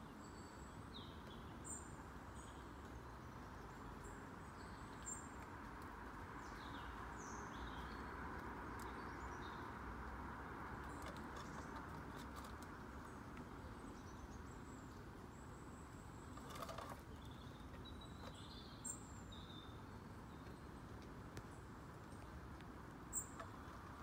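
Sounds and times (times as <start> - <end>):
faint background hiss: 0.0 - 24.0
distant bird chirps: 23.1 - 24.0.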